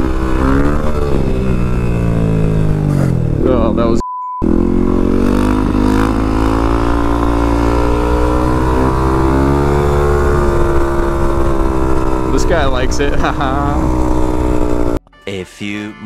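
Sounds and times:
motorcycle engine pulling: 0:00.0 - 0:15.0.

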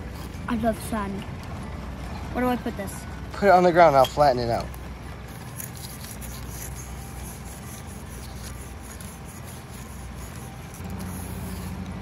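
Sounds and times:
low steady hum: 0:00.0 - 0:12.0
toy scraping through sand: 0:03.9 - 0:12.0.

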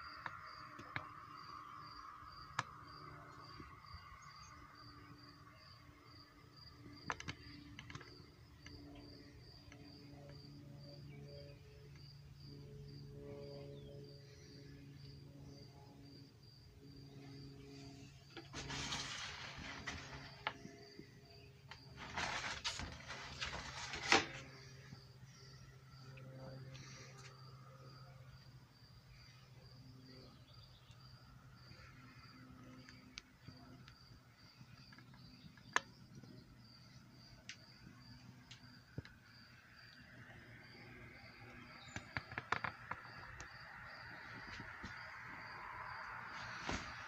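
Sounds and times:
faint insect chirping: 0:00.0 - 0:47.0.

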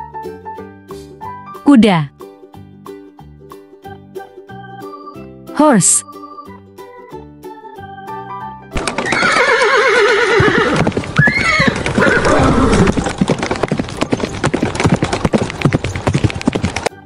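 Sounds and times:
horse whinnying: 0:08.8 - 0:15.1
hooves clip-clopping: 0:08.8 - 0:17.0.

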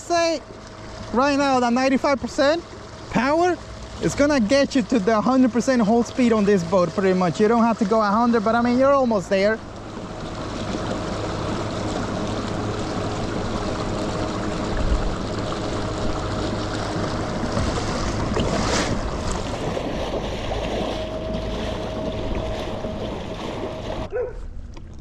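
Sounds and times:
water rushing along hull: 0:00.0 - 0:25.0
wind on microphone: 0:14.5 - 0:24.1
faint electric motor whine: 0:20.3 - 0:24.2.

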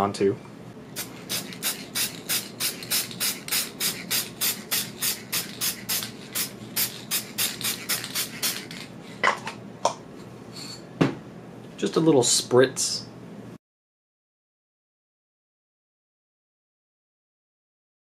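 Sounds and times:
aerosol can being shaken: 0:01.0 - 0:09.0.

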